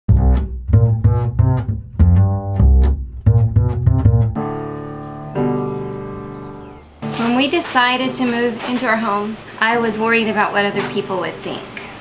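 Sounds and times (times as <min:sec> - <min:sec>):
plucked notes over deep bass: 0:00.1 - 0:08.4.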